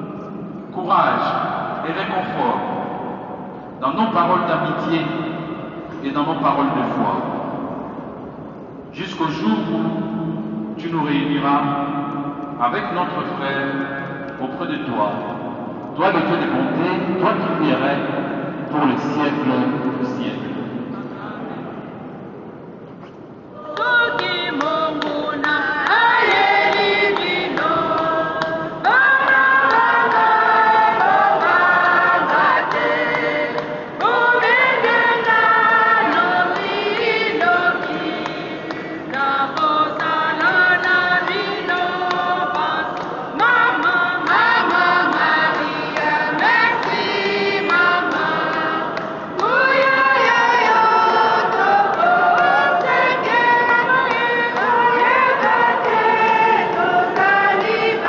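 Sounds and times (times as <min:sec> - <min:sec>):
choir singing: 0:23.6 - 0:58.0.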